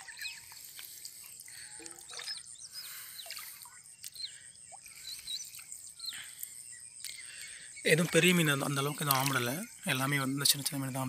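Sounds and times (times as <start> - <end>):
water swishing as person wades: 0.0 - 6.8
birds chirping: 0.0 - 11.0.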